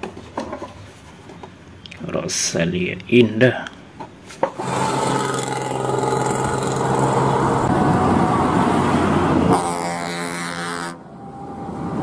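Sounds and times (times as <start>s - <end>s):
road and tyre noise: 0.0s - 12.0s
bus engine hum: 4.6s - 12.0s.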